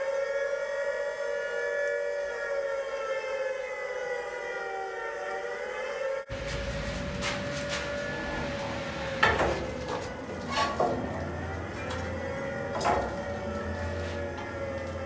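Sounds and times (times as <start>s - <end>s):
low hum: 6.3s - 15.0s
metallic clanks and knocks: 6.3s - 15.0s.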